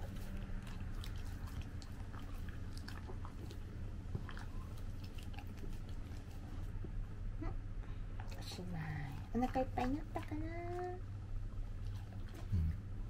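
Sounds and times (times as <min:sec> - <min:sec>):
dog chewing crunchy food: 0:00.0 - 0:06.8, 0:11.5 - 0:12.9.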